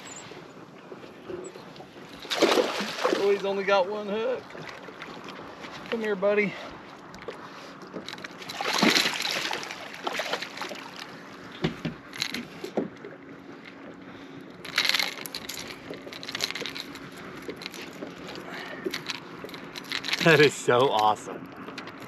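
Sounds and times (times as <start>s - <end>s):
fish thrashing: 1.5s - 3.4s, 7.0s - 11.3s, 14.6s - 20.6s
fish splashing at the surface: 2.2s - 3.4s, 8.4s - 11.0s.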